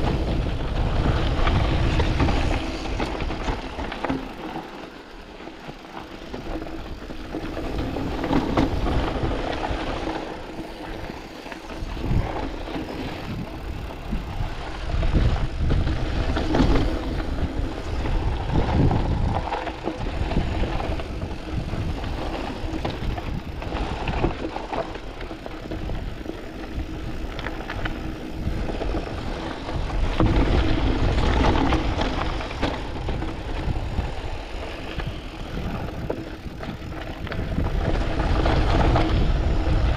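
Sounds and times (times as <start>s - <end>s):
bike knocking and rattling: 0.0s - 39.9s
tyres crunching over gravel: 0.0s - 39.9s
wind rumble on microphone: 0.0s - 39.9s.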